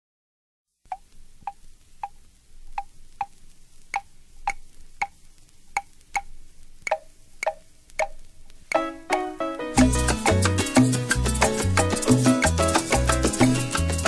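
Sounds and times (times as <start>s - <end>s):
faint hiss: 0.8s - 14.0s
claves playing a rhythm: 6.9s - 14.0s.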